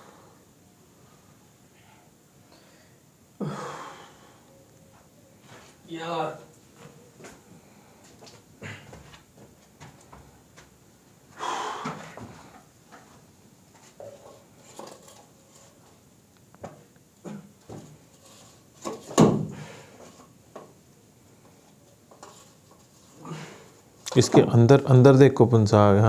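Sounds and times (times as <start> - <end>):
scraping rustle: 12.1 - 16.0, 17.7 - 19.2, 21.6 - 23.9.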